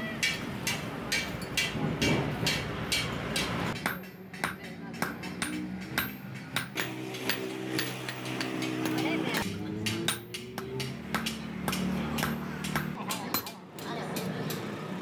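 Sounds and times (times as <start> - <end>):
hammer striking steel on anvil: 0.0 - 14.6.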